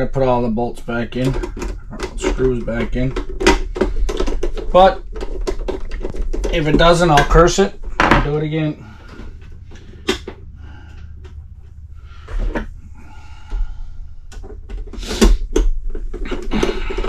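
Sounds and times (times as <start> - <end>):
plastic scraping: 0.0 - 17.0
plastic clicks and knocks: 1.2 - 8.4, 14.3 - 17.0.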